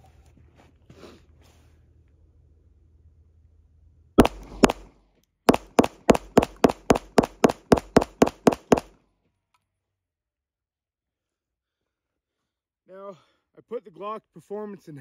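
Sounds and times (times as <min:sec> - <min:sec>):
pistol shots: 0:04.2 - 0:04.9, 0:05.5 - 0:08.9.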